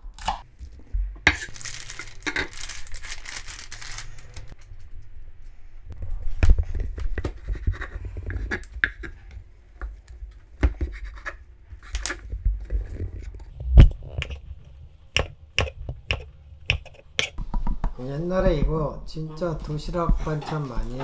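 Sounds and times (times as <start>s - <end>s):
knife scraping: 15.2s - 17.4s.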